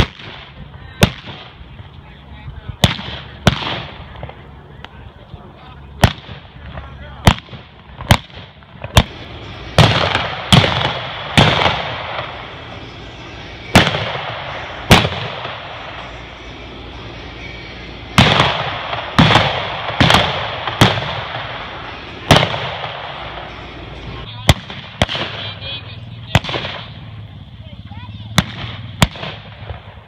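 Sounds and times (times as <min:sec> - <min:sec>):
revolver shots: 0:18.1 - 0:23.7.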